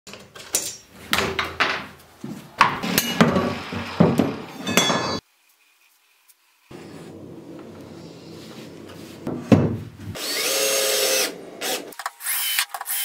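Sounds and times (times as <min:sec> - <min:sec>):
metal knocking on wooden bench: 0:09.2 - 0:09.8.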